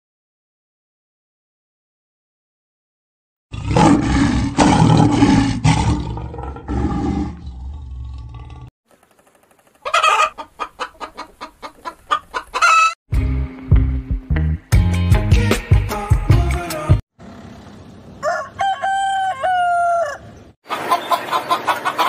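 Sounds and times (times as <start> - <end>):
hens clucking: 9.6 - 13.0, 18.6 - 22.0.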